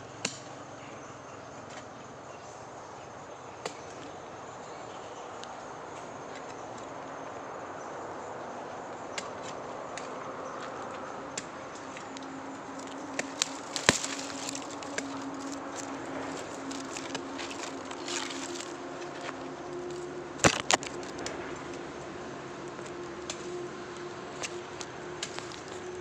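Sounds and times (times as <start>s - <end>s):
faint low hum: 0.0s - 26.0s
steady outdoor hiss: 0.0s - 26.0s
hoe chopping dry soil: 12.6s - 19.4s, 20.4s - 21.4s, 24.4s - 25.8s.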